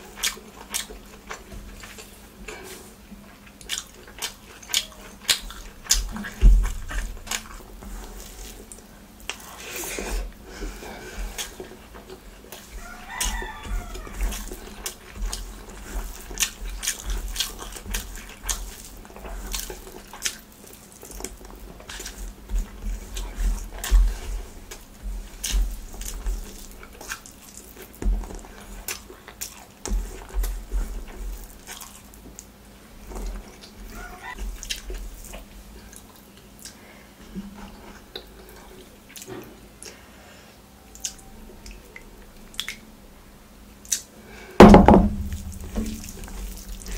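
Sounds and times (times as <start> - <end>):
chewing and lip-smacking: 0.0 - 9.9, 10.6 - 36.8, 37.7 - 40.0, 40.9 - 42.8, 43.8 - 44.1
fingers squishing rice: 0.0 - 36.9.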